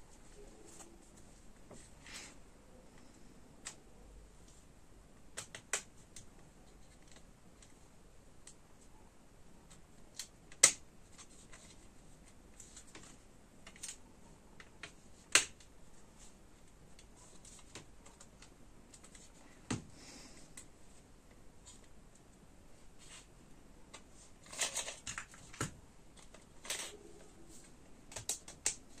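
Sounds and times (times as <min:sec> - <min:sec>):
plastic clicks and snaps: 0:28.1 - 0:29.0.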